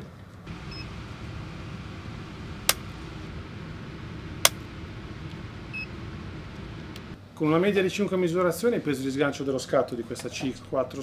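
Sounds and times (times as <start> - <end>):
background hum: 0.0 - 7.4
faint short beep: 0.7 - 0.9
trigger clicks: 2.6 - 3.0, 4.4 - 5.9.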